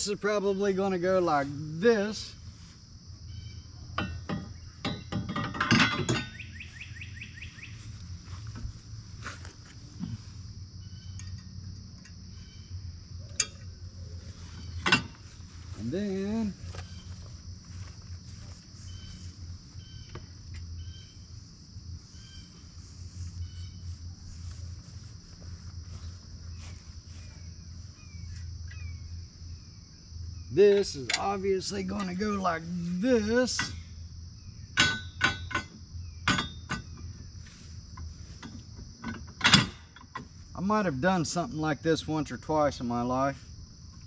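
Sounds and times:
insect drone: 0.0s - 44.0s
bird chirps: 3.2s - 3.8s, 6.1s - 8.0s, 10.8s - 11.5s, 12.3s - 12.9s, 13.7s - 21.4s, 22.0s - 24.6s, 25.9s - 35.2s
knocks and clatter of parts: 4.0s - 6.5s, 14.6s - 18.6s, 34.8s - 37.1s, 38.0s - 40.4s.

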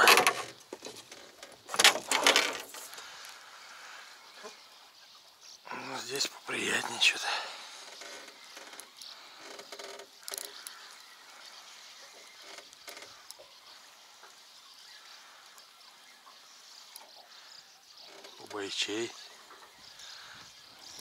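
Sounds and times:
fishing gear clicks and knocks: 0.0s - 3.0s
faint open-air hiss: 0.0s - 21.0s.

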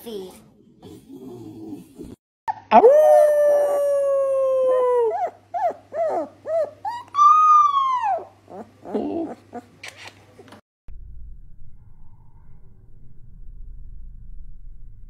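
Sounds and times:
person howling: 2.7s - 5.2s
puppy howling: 2.7s - 9.7s.

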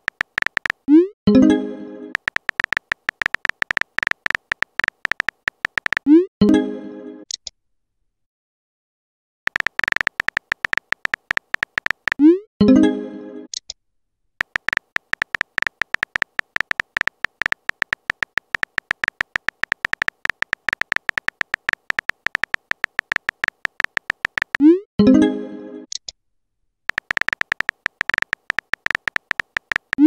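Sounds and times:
rapid keyboard clicks: 0.0s - 0.9s, 2.2s - 6.1s, 9.5s - 12.3s, 14.4s - 24.6s, 26.9s - 30.0s.

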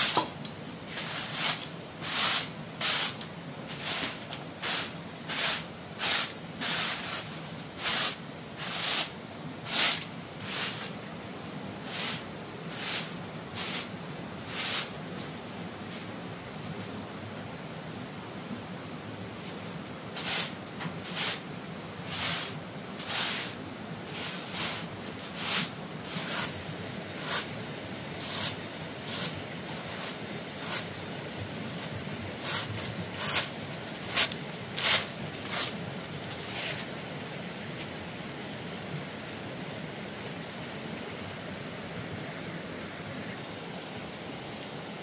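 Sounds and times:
hand tool scraping earth: 0.0s - 9.1s, 22.1s - 26.6s, 28.2s - 31.0s, 31.6s - 37.0s
steady hiss: 0.0s - 45.0s.

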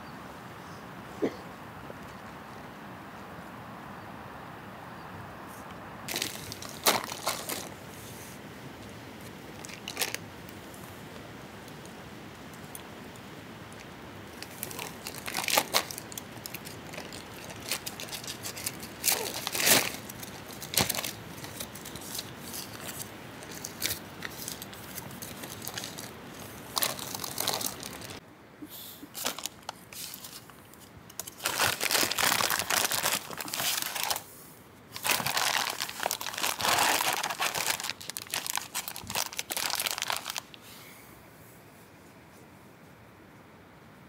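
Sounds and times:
crinkly material crumpling: 6.1s - 8.4s, 9.2s - 11.0s, 13.7s - 28.2s, 29.1s - 34.3s, 34.9s - 40.6s.

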